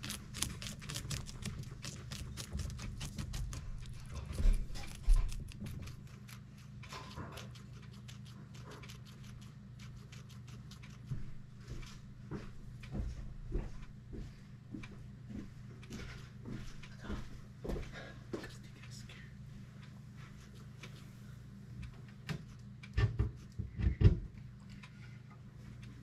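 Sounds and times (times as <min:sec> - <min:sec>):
guinea pigs chewing celery: 0:00.0 - 0:14.0, 0:19.6 - 0:23.7, 0:24.5 - 0:26.0
steady low hum: 0:00.0 - 0:26.0.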